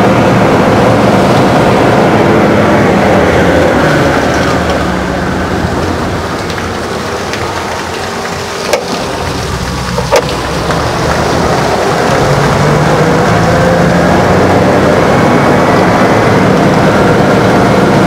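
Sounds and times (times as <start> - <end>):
truck engine running: 0.0 - 18.0
water splashing onto ground: 3.8 - 15.4.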